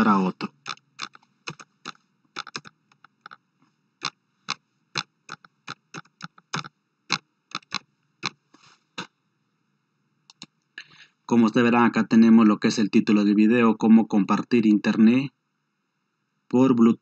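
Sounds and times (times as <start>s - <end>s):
keyboard typing: 0.0s - 3.4s, 4.0s - 8.4s.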